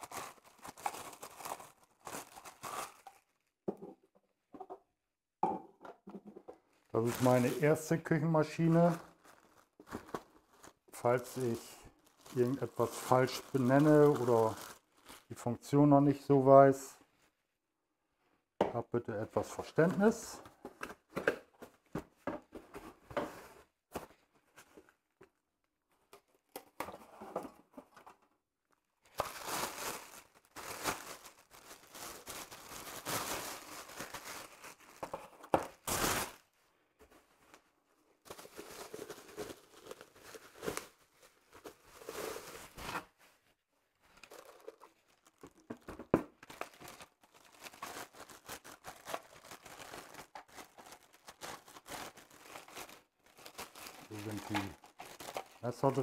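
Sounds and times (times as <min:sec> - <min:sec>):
cardboard and plastic rustling: 0:00.0 - 0:03.5, 0:06.2 - 0:15.3, 0:29.1 - 0:56.0.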